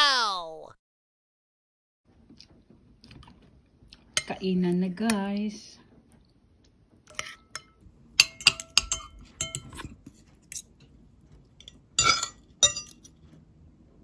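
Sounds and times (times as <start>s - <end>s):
cutlery clinking on ceramic plate: 7.1s - 10.8s, 11.6s - 13.2s.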